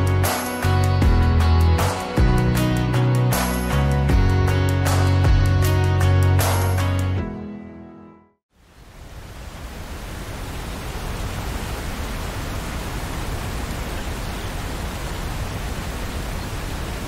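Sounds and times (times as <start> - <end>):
steady rain falling: 8.5 - 17.0.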